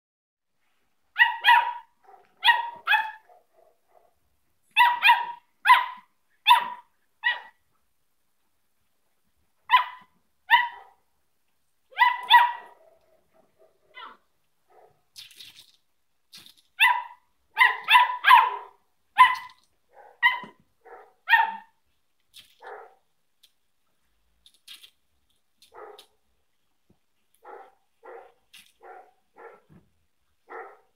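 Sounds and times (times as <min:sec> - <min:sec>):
puppy barking in high-pitched yaps: 0:01.1 - 0:07.6, 0:09.7 - 0:11.0, 0:11.9 - 0:15.0, 0:16.8 - 0:21.8, 0:22.6 - 0:23.0, 0:25.7 - 0:26.2, 0:27.4 - 0:29.8, 0:30.4 - 0:30.9.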